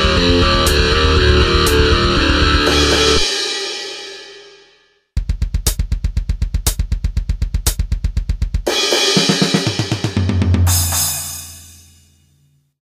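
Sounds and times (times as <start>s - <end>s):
low distorted chord: 0.0s - 3.2s
cymbal crashes: 2.6s - 4.8s, 8.7s - 12.2s
fast double-kick drums: 5.2s - 10.8s.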